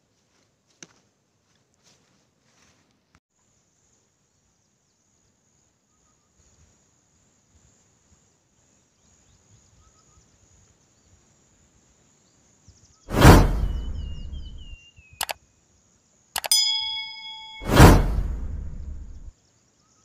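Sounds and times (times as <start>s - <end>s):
outdoor background hiss: 0.0s - 20.0s
faint short chirps: 13.6s - 15.4s, 16.4s - 19.3s.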